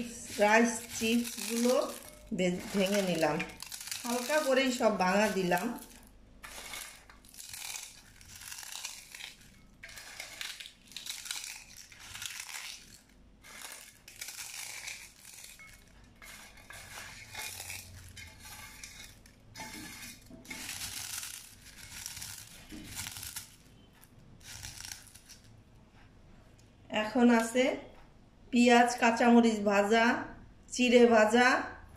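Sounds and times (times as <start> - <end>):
rice chips crunching in a bowl: 0.0 - 25.5.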